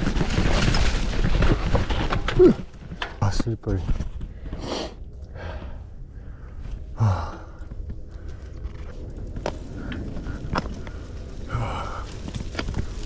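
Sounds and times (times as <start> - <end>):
low rumble of riding: 0.0 - 13.0
person breathing hard: 4.3 - 8.6, 9.7 - 12.9.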